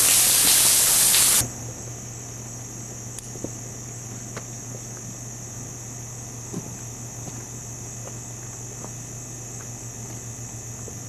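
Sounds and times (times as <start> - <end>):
loud steady hiss: 0.0 - 1.5
insects droning: 0.0 - 11.0.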